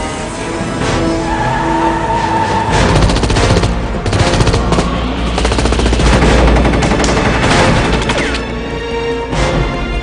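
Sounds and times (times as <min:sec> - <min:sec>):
rapid gunfire: 0:02.8 - 0:08.5.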